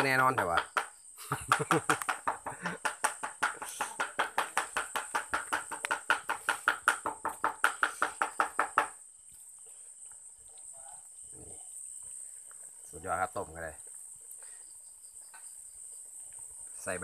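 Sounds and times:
crickets chirring: 0.0 - 17.0
knife chopping on wooden board: 1.5 - 9.0.

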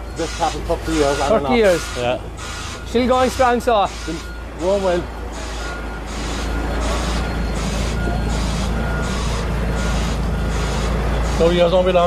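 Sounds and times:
diesel engine running: 0.0 - 12.0
truck reversing alarm: 0.0 - 12.0.

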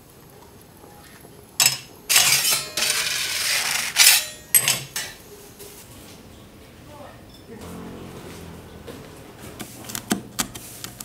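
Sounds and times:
hard objects clinking: 1.6 - 5.2
rough scraping and crunching: 2.1 - 4.6.

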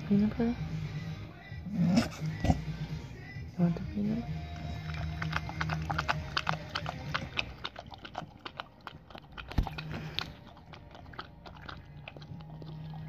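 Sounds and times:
dog licking and smacking: 4.3 - 13.0.

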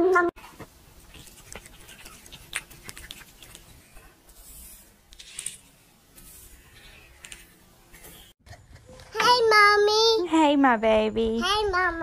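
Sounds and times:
cat lapping milk: 1.0 - 3.7.

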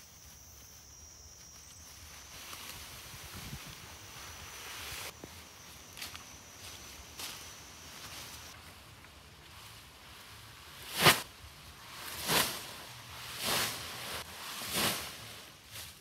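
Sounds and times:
grass bundles rustling: 0.0 - 16.0
grass bundle thud: 12.1 - 12.8, 13.4 - 15.3.

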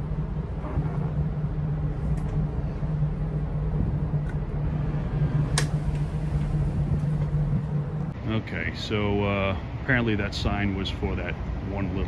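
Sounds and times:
boat engine idling: 0.0 - 12.0.

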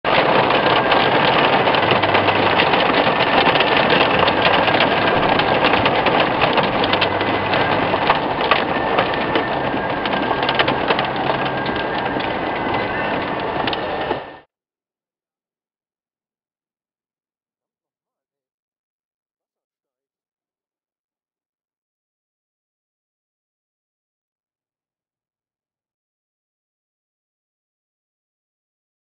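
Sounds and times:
hail clattering on car roof: 0.1 - 14.4
heavy rain hiss: 0.1 - 14.4.

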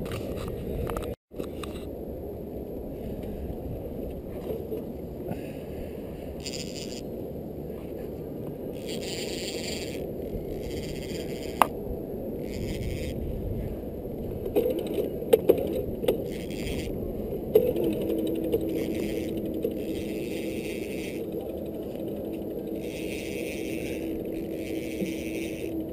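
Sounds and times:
fishing reel ticking: 8.8 - 11.7, 14.5 - 16.9, 17.6 - 25.9
sharp clicks and knocks: 14.4 - 16.7, 17.5 - 23.0.

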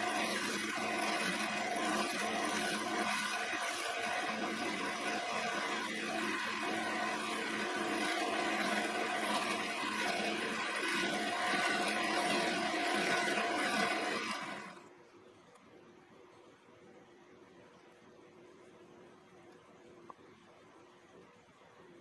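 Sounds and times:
grinder wheel grinding metal: 0.0 - 14.9.

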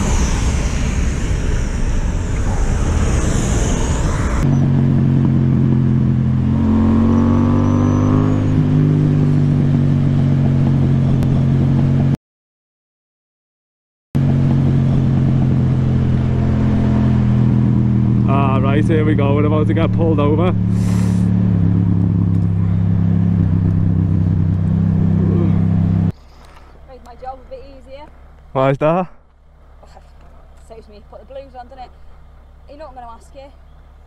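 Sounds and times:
motorcycle engine accelerating: 0.0 - 12.2, 14.2 - 26.2
rushing wind and road noise: 0.0 - 12.2, 14.2 - 26.2.

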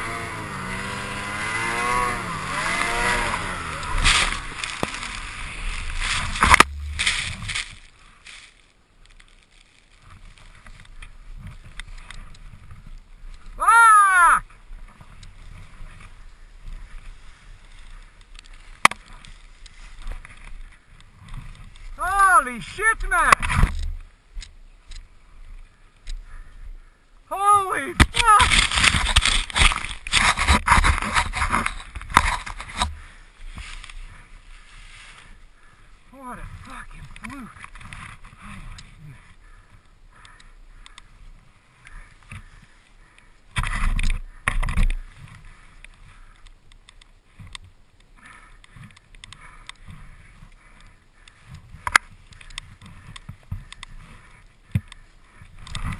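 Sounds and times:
snowmobile engine running hard: 0.0 - 6.5
snow rustling: 2.2 - 20.4, 27.5 - 37.6.

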